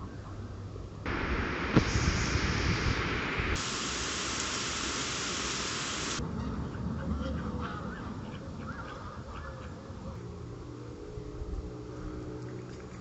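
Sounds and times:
waves washing ashore: 1.1s - 6.2s.

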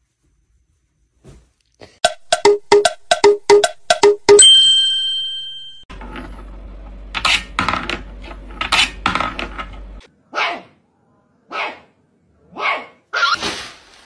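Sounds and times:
dog barking: 10.3s - 10.8s, 11.5s - 13.4s.

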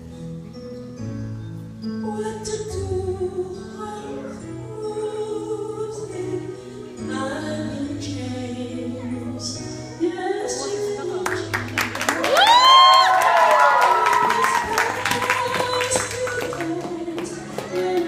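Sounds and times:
woman singing into microphone: 2.0s - 12.0s, 13.0s - 18.0s.

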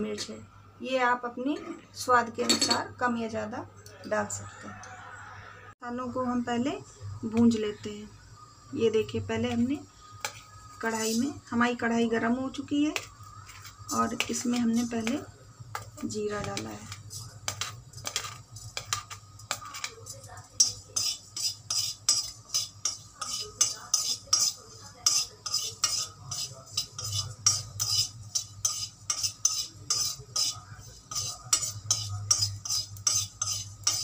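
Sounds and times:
spoon scraping seeds in metal pan: 9.5s - 11.6s, 12.5s - 34.0s.

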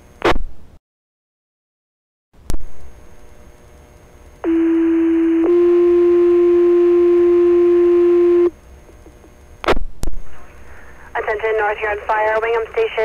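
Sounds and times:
radio hiss: 10.2s - 13.0s.

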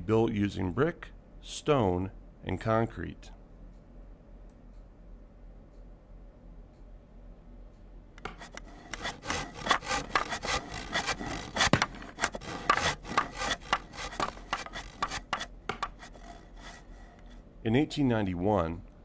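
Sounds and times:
crackling and scraping noises: 8.2s - 17.4s.

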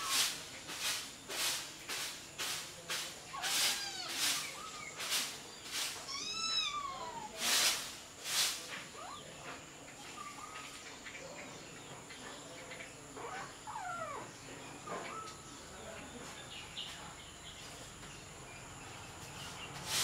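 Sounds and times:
kittens mewing: 6.1s - 7.3s.

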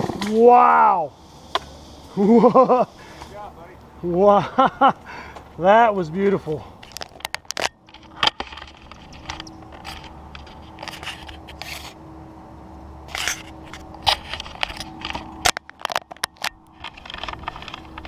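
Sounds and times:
steady low hum: 0.0s - 18.0s
camera being handled: 6.8s - 12.0s, 13.1s - 18.0s.

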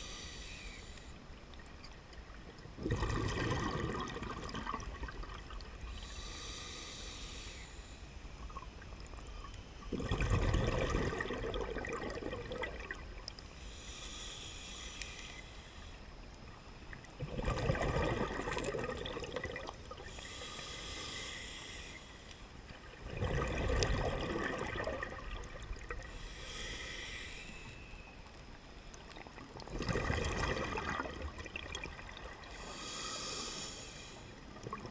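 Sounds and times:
diver inhaling through regulator: 0.0s - 1.2s, 5.9s - 8.2s, 13.5s - 16.1s, 19.9s - 22.4s, 26.0s - 28.1s, 32.4s - 34.4s
bubbling exhaled air: 2.8s - 6.2s, 9.9s - 13.0s, 17.2s - 21.4s, 22.9s - 27.3s, 29.6s - 33.6s.

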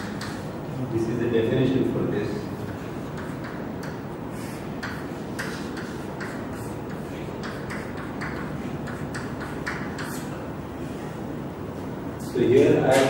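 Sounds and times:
chalk tapping and scraping blackboard: 0.0s - 0.6s, 2.6s - 10.4s
steady room hum: 0.0s - 13.0s.

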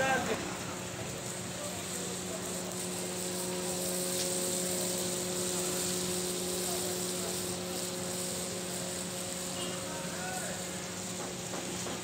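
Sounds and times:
machine hum: 0.0s - 11.9s
constant hiss: 0.0s - 12.0s.

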